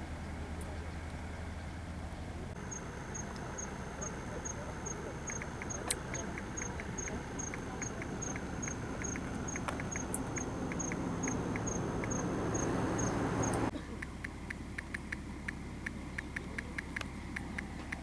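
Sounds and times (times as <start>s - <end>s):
cricket chirping: 2.6s - 13.7s
faint clicks: 5.2s - 18.0s.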